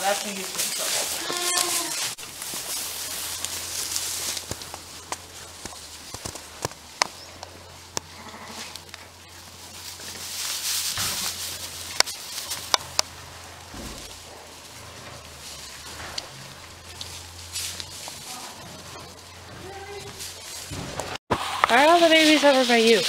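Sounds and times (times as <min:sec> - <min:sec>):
straw rustling: 0:00.0 - 0:23.0
sheep bleating: 0:01.1 - 0:02.1, 0:08.1 - 0:08.8.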